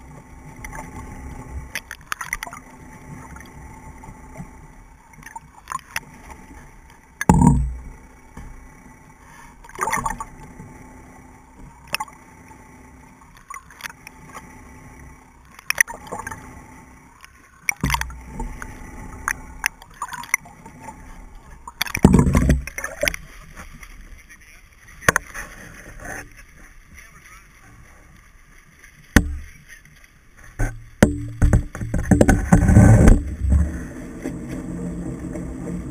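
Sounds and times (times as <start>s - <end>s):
low underwater hum: 0.0s - 35.9s
rushes of water: 0.0s - 35.9s
sharp clicks and knocks: 7.2s - 8.6s, 17.2s - 21.0s, 21.6s - 23.9s, 30.6s - 34.4s.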